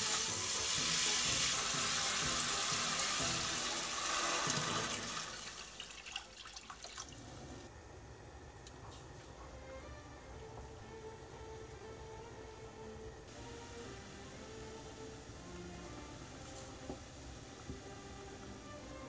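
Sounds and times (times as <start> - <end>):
meat sizzling in a pan: 0.0 - 5.7
water pouring: 0.0 - 7.7.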